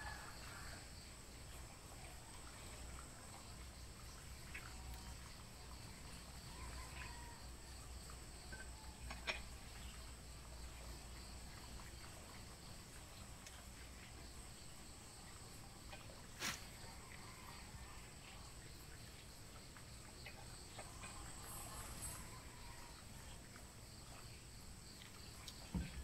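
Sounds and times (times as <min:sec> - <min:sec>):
crickets and insects chirring: 0:00.0 - 0:26.0
constant high tone: 0:20.8 - 0:23.2.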